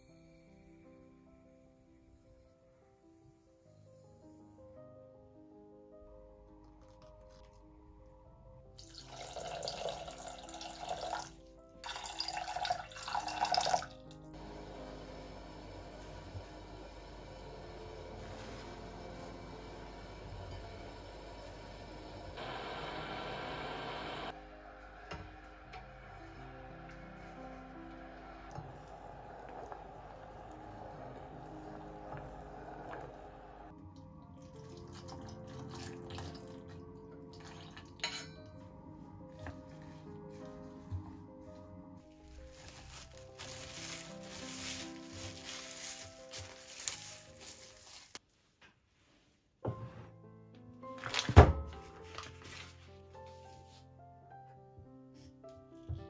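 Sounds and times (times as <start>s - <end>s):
soft background music: 0.0s - 48.3s, 48.9s - 56.0s
syrup trickling and splashing: 8.8s - 14.0s
water pouring into saucepan: 8.8s - 14.0s, 28.2s - 33.7s, 34.4s - 36.7s.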